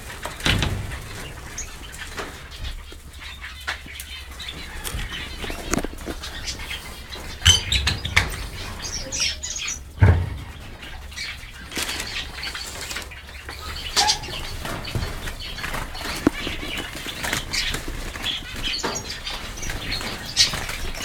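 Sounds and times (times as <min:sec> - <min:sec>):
finches chirping: 0:03.2 - 0:20.6
wings fluttering: 0:04.4 - 0:13.1
sharp knocks: 0:07.4 - 0:11.3.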